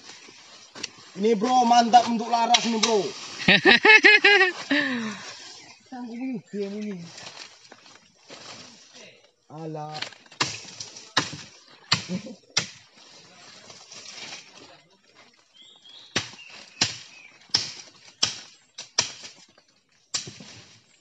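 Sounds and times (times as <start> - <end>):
machete chopping wood: 10.0 - 12.9, 16.1 - 19.4, 20.1 - 20.6.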